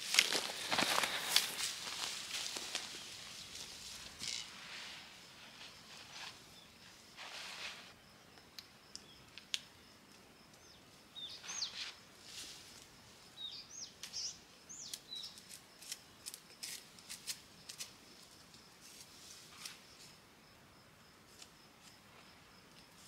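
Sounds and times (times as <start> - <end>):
twigs snapping: 0.0 - 3.0
pine boughs rustling: 0.0 - 8.0, 11.4 - 12.9.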